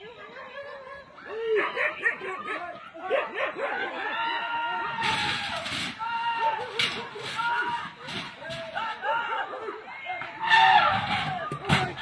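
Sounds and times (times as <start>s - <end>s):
dogs barking: 1.4s - 4.2s.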